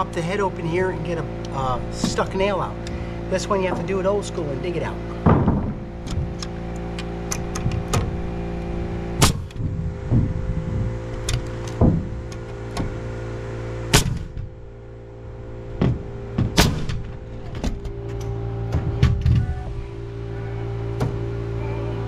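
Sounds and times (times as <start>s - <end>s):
motor hum: 0.0s - 22.0s
wood knocks: 5.1s - 6.5s, 9.3s - 13.0s, 15.8s - 17.9s
nail gun shots: 9.2s - 9.6s, 13.9s - 14.3s, 16.6s - 17.0s.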